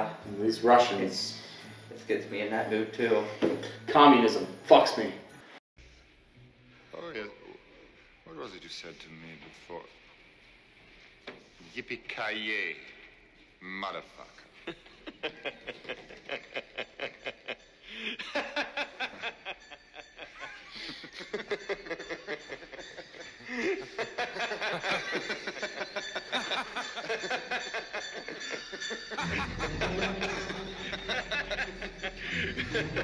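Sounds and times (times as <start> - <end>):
men laughing: 14.4 - 33.0.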